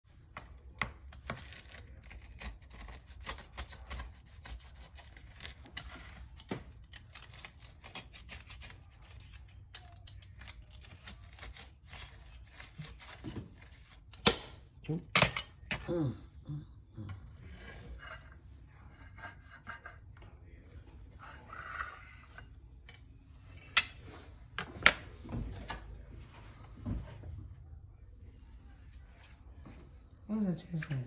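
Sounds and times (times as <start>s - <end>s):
pie crust crackling under cutter: 0.2s - 15.2s.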